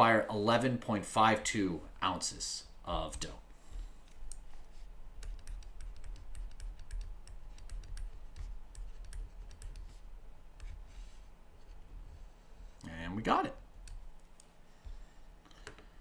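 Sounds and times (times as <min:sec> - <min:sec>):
low steady hum: 0:00.0 - 0:16.0
stylus tapping on screen: 0:05.2 - 0:10.0.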